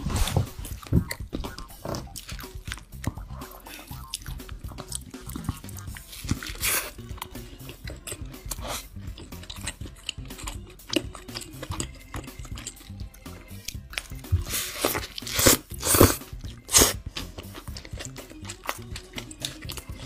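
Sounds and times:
wet chewing: 0.2 - 20.0
crunchy bite: 13.7 - 18.8.

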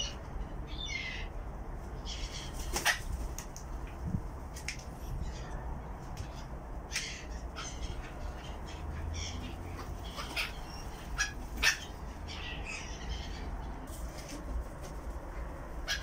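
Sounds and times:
gulls squawking: 6.9 - 13.7.

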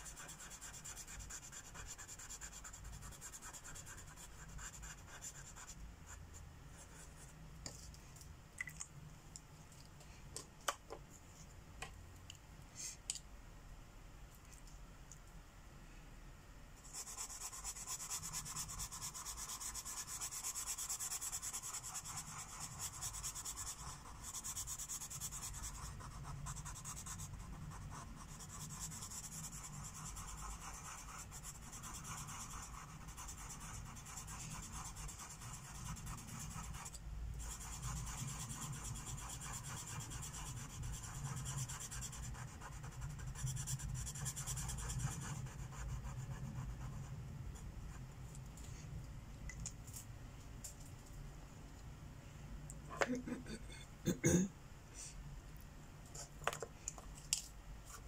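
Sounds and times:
marker rubbing on paper: 0.0 - 6.2, 16.8 - 47.1.

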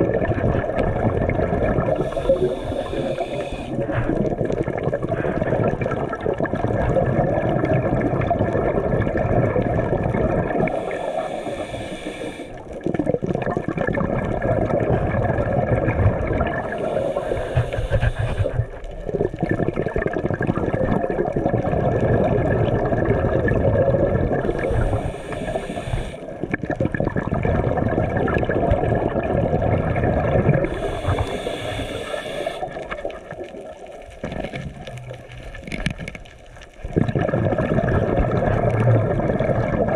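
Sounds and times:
underwater rushing of water: 0.0 - 39.9
short bursts of hissing: 2.0 - 3.9, 10.7 - 12.6, 16.8 - 18.6, 24.5 - 26.2, 30.7 - 32.8.

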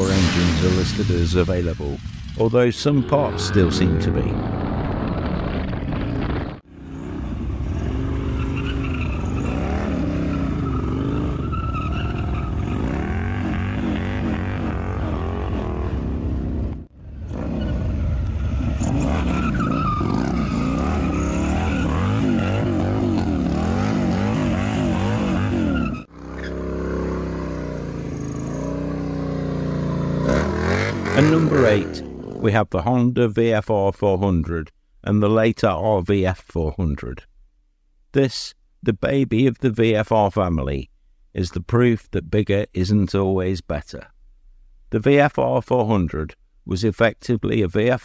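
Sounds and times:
motorcycle engine revving: 3.1 - 32.4.

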